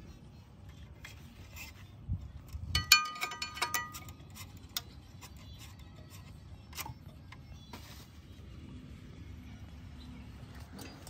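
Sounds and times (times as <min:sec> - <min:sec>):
light metallic clinks: 0:02.7 - 0:04.2.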